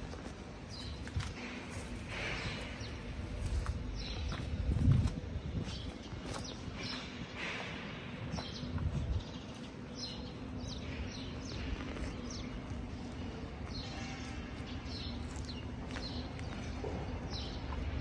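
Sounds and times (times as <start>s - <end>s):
steady low hum: 0.0s - 18.0s
small birds chirping: 0.6s - 18.0s.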